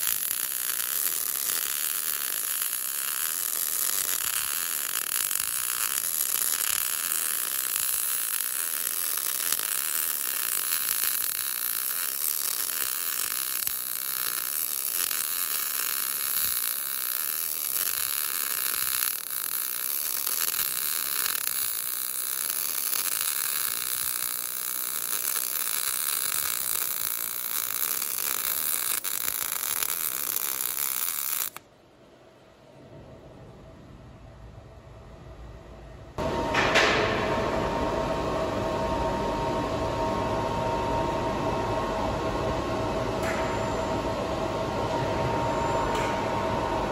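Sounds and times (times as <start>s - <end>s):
welding arc running: 0.0s - 31.6s.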